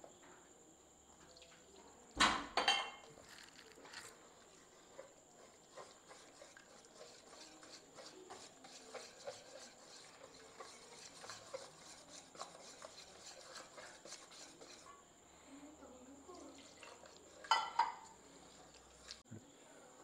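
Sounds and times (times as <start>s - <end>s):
utensil clicking and scraping bowl: 3.2s - 15.0s, 16.5s - 19.2s.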